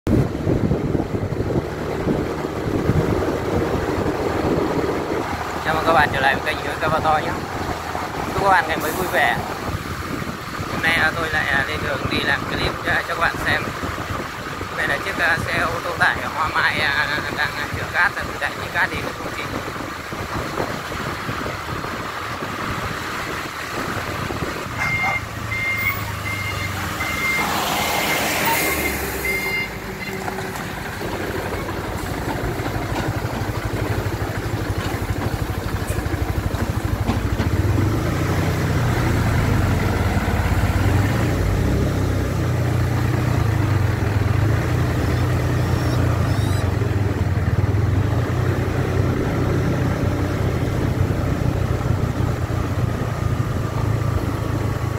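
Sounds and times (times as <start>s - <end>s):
truck engine running: 19.0s - 54.9s
short high beeps: 24.8s - 27.5s, 28.1s - 30.2s, 45.6s - 46.7s.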